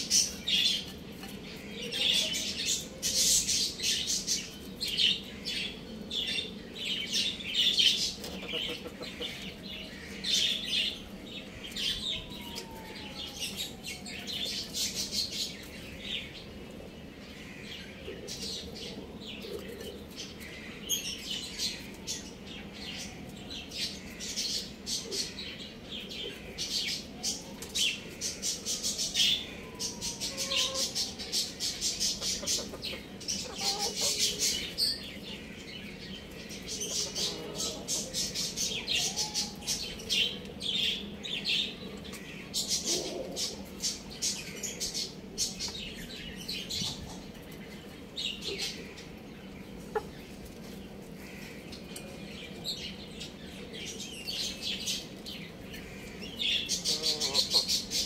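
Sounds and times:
birds chirping rapidly: 0.0 - 19.4, 20.2 - 58.0.

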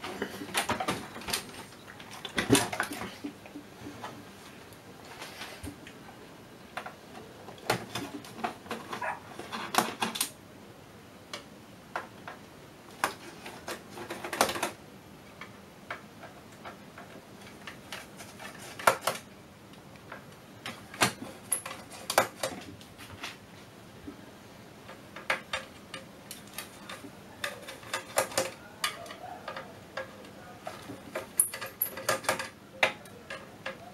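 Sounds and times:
screwdriver clicking and scraping on metal: 24.9 - 33.9.

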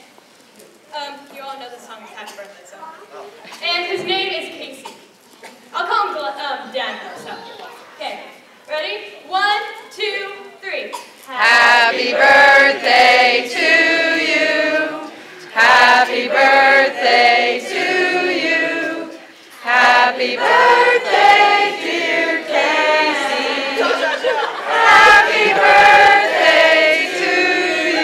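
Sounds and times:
group singing unaccompanied: 11.3 - 28.0.

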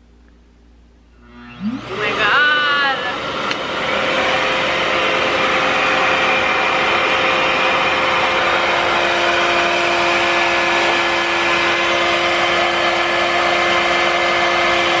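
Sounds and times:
low hum: 0.4 - 2.5
hair dryer air rush and whine: 1.2 - 15.0.

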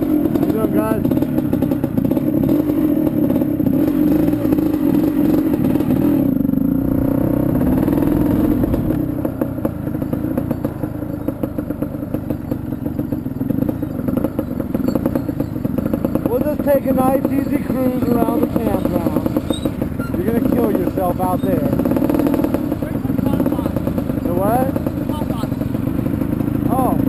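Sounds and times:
quad engine running: 0.0 - 27.0.

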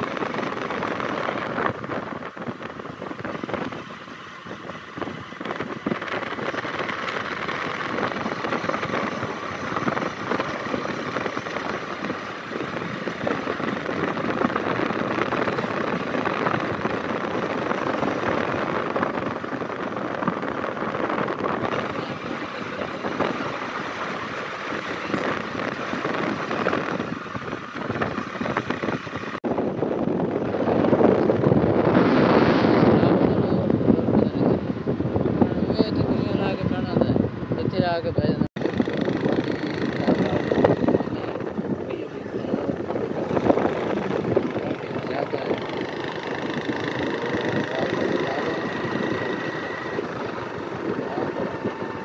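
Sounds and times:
moving vehicle road noise: 0.0 - 52.0
wind rush over microphone: 0.0 - 52.0.

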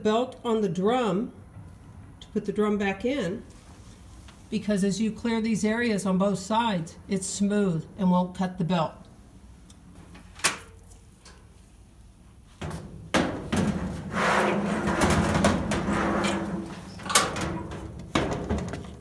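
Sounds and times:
sheet-metal scraping: 12.6 - 19.0.

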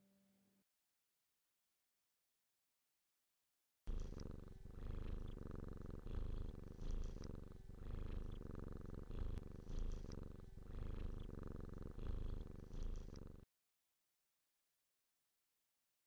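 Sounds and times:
cat purring: 3.9 - 13.5.

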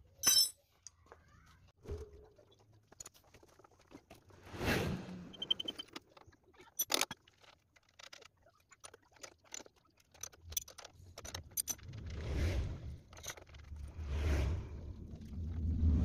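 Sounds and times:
metal tools clinking: 0.1 - 0.7
rumbling noise: 11.8 - 16.0.

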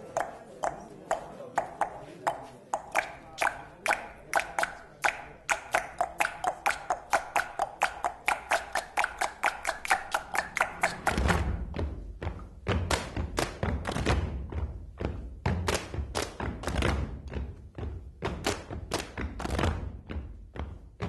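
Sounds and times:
sharp percussive strikes: 0.2 - 11.8.

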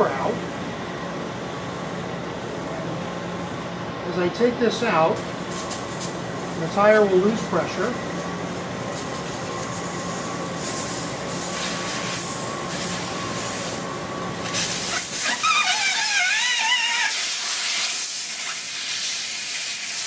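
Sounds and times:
air hissing from tire valve: 9.0 - 13.8, 14.4 - 20.0.

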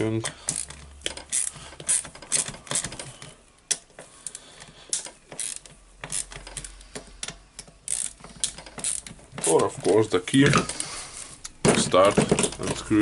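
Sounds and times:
ratchet wrench clicking: 0.4 - 3.0, 3.7 - 9.2.

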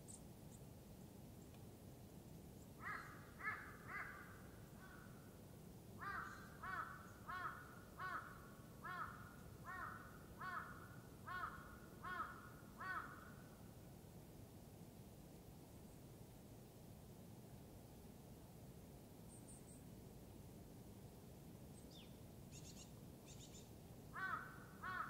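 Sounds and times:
crow cawing: 2.8 - 5.1, 6.0 - 13.4, 24.2 - 25.0.

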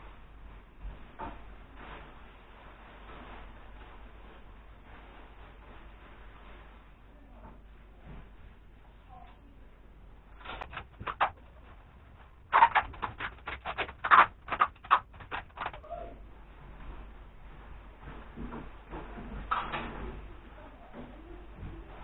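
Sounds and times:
plastic coat crinkling: 0.2 - 7.2, 10.1 - 20.0.

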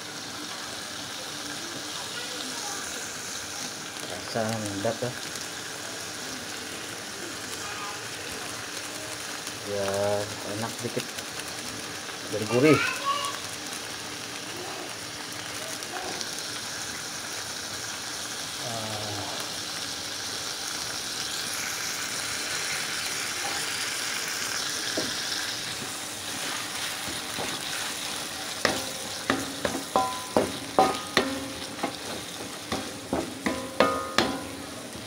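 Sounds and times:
sizzling in oil in a wok: 0.0 - 35.0
spatula knocking against wok: 28.6 - 34.7.

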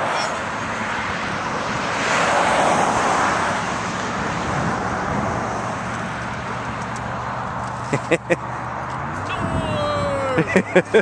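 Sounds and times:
road noise: 0.0 - 11.0
vehicle passing: 0.0 - 11.0.

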